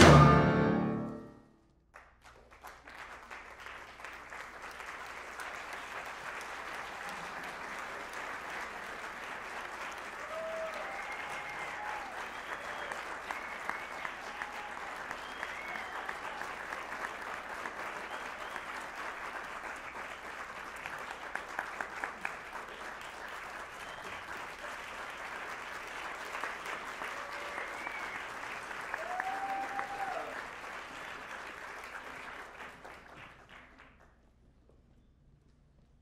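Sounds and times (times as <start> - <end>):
audience applauding: 1.9 - 34.2
audience whooping: 6.6 - 8.0, 9.9 - 19.1, 26.7 - 30.7.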